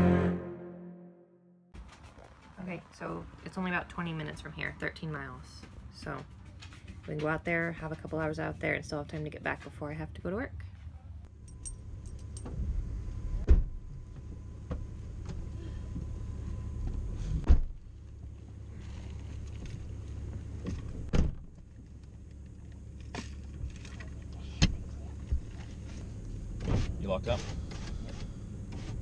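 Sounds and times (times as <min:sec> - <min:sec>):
low steady rumble: 0:08.4 - 0:29.0.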